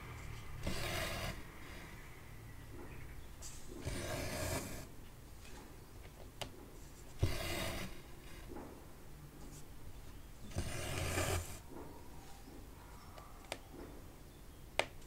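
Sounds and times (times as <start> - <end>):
thread rasping through fabric: 3.8 - 4.9, 7.1 - 8.5, 10.4 - 11.6.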